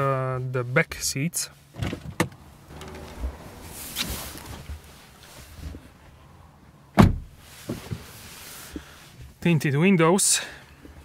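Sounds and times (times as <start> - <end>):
handling and rustling: 1.7 - 6.2
car door shutting with thud: 6.9 - 8.0.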